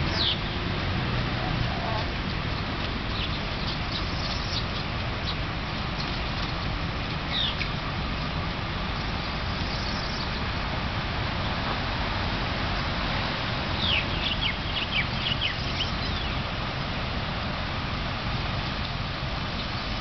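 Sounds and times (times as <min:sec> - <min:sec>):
bird chirping: 0:00.0 - 0:00.6, 0:03.1 - 0:05.4, 0:07.3 - 0:07.7, 0:09.6 - 0:10.4, 0:13.8 - 0:16.4
steady background noise: 0:00.0 - 0:20.0.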